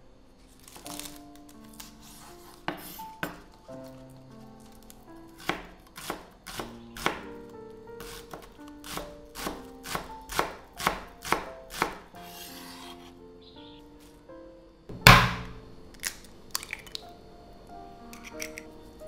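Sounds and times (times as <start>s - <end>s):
knife chopping on cutting board: 2.7s - 3.4s, 5.4s - 7.3s, 8.0s - 13.1s, 15.0s - 15.6s.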